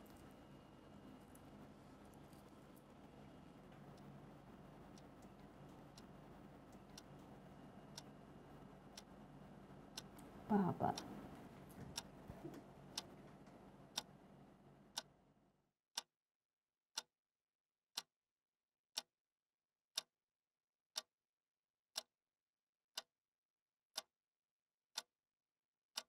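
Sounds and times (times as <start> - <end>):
faint room hiss: 0.0 - 15.4.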